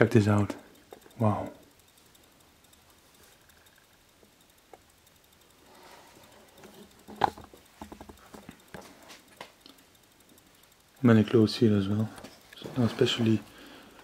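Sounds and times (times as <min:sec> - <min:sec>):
light taps and clicks: 0:06.5 - 0:11.4.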